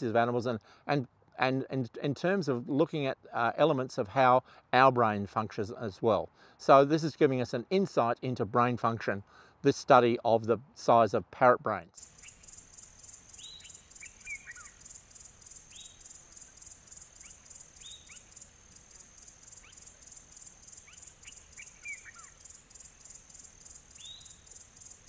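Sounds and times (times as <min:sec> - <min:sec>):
birds whistling falling calls: 0:12.0 - 0:25.0
insects chirring: 0:12.0 - 0:25.0.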